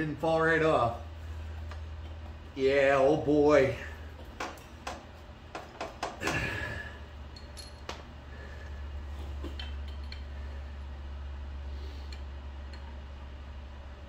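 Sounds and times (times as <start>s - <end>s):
low hum: 6.2s - 14.0s
metallic clinks of tools: 7.3s - 8.0s.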